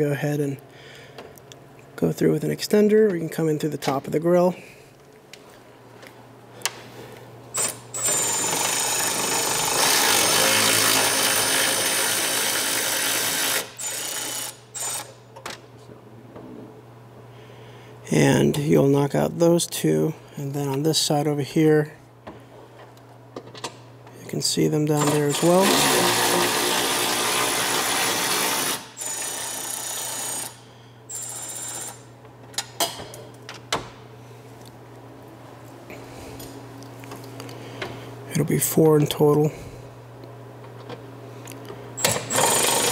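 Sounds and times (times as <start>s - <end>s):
cordless power tool whining: 7.6s - 15.1s, 25.0s - 32.0s, 42.0s - 42.9s.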